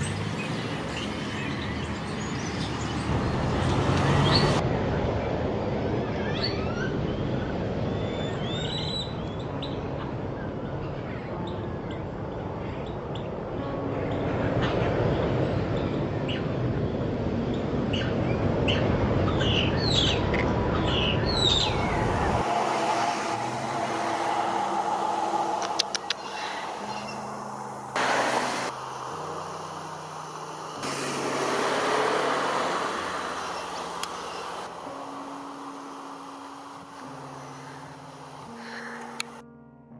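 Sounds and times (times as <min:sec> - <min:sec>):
road traffic hum: 0:00.0 - 0:09.0, 0:12.6 - 0:39.4
birds whistling and chipping: 0:07.9 - 0:09.8, 0:20.8 - 0:22.4, 0:25.0 - 0:27.6
low sustained notes: 0:21.2 - 0:39.9.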